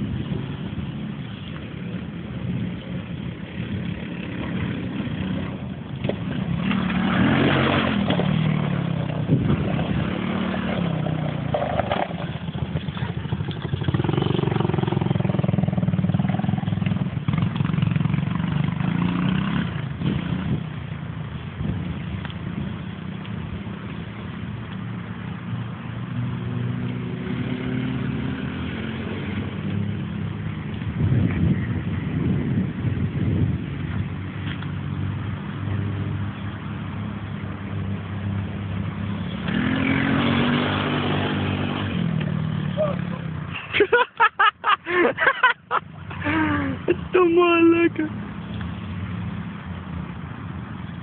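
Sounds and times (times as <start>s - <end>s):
quad bike engine running: 0.0s - 22.7s, 38.8s - 43.6s.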